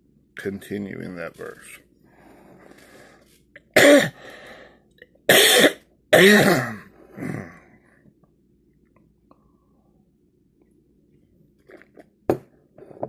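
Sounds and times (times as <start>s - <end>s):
man coughing: 3.7s - 4.2s, 5.3s - 7.6s.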